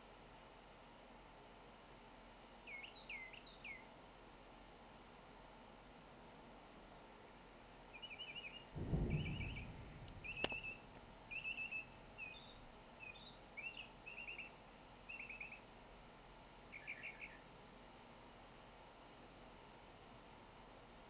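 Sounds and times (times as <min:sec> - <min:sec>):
sharp click: 0:08.8 - 0:11.4
low thump: 0:08.8 - 0:12.8.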